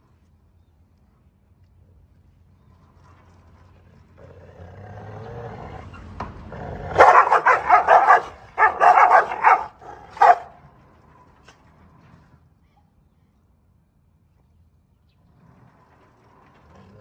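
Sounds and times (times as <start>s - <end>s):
dogs barking and snarling: 4.2s - 10.7s
dog growling: 6.5s - 10.4s.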